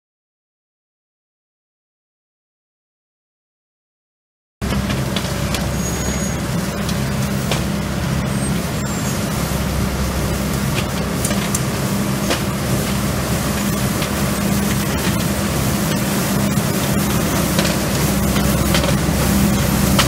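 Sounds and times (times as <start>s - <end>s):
suction truck engine drone: 4.6s - 20.0s.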